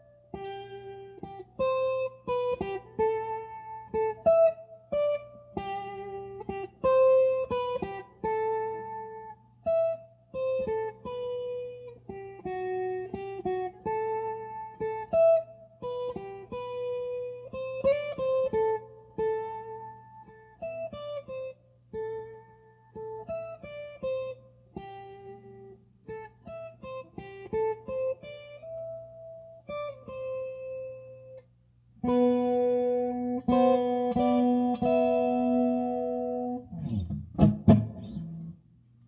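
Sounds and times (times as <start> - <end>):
strummed guitar chords: 0.0 - 31.4, 32.0 - 38.6
electric guitar melody: 0.0 - 38.6
guitar handling thumps: 36.8 - 38.5.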